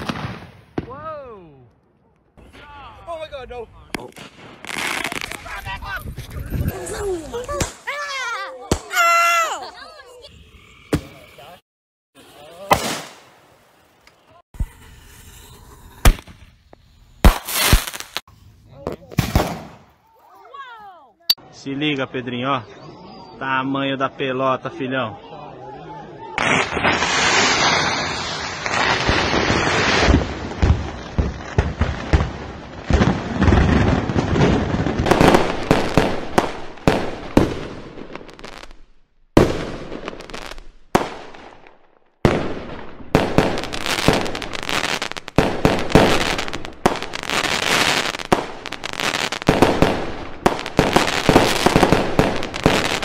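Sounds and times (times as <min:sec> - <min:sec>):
fireworks bangs and crackling: 0:00.0 - 0:01.2, 0:02.4 - 0:09.0, 0:12.6 - 0:19.9, 0:26.4 - 0:53.0.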